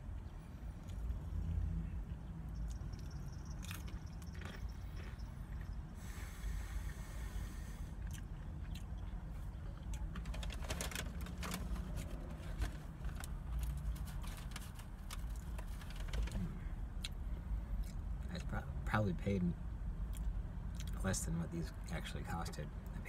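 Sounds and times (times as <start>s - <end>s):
low steady rumble: 0.0s - 23.0s
food packaging crinkling: 10.1s - 16.4s.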